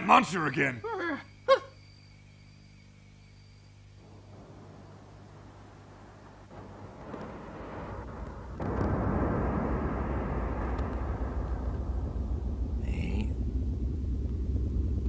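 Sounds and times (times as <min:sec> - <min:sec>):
steady low rumbling: 0:04.0 - 0:15.0.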